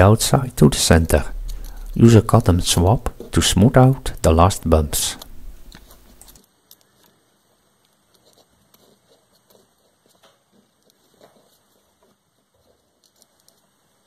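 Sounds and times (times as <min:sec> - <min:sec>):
low hiss: 0:00.0 - 0:08.2.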